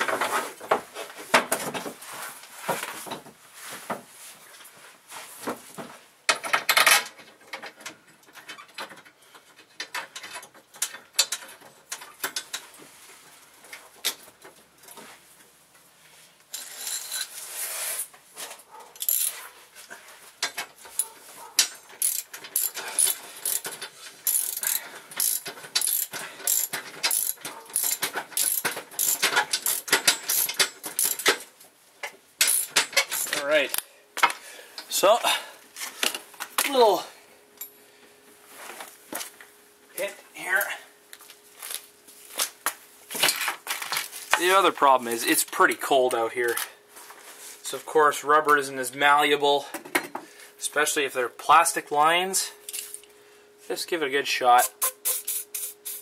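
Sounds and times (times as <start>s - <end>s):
socket ratchet clicking: 22.0s - 31.3s.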